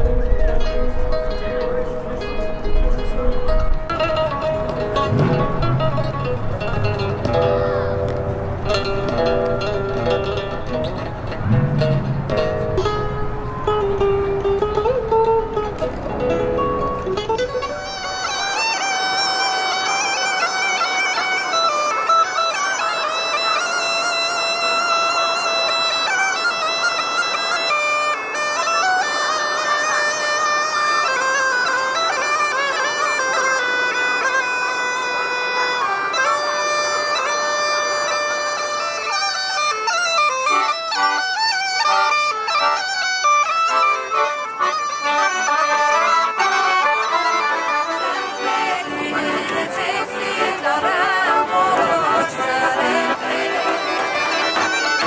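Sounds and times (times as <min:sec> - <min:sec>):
accordion: 0:00.0 - 0:55.0
bagpipe folk dance tune: 0:00.0 - 0:55.0
large drum beating: 0:03.6 - 0:07.6, 0:11.1 - 0:13.8.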